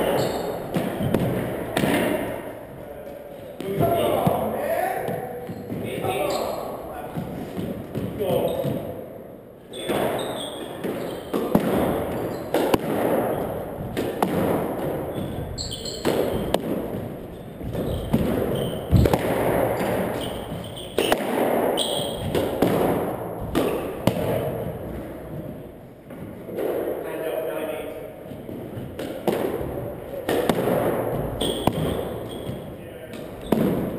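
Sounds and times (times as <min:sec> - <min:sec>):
shoe squeaks: 0:00.0 - 0:00.7, 0:05.2 - 0:06.7, 0:08.3 - 0:08.8, 0:09.7 - 0:12.6, 0:15.0 - 0:16.6, 0:17.2 - 0:19.1, 0:19.8 - 0:22.3, 0:31.3 - 0:33.9
squash ball cracking off rackets: 0:09.8 - 0:26.9, 0:28.5 - 0:33.9.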